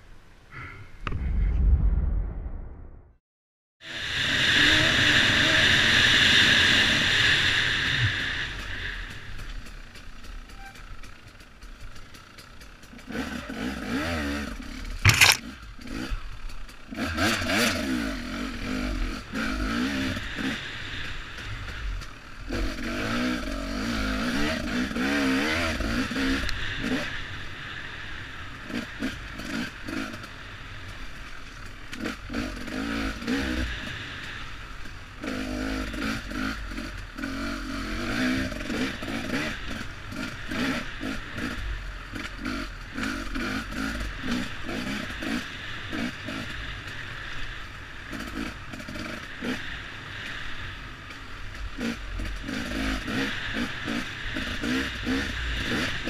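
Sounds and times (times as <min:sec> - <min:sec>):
dirt bike engine revving: 0:10.2 - 0:27.2, 0:32.0 - 0:34.2, 0:35.2 - 0:47.1, 0:48.1 - 0:50.4, 0:51.8 - 0:56.0
bike clatter: 0:15.0 - 0:15.5.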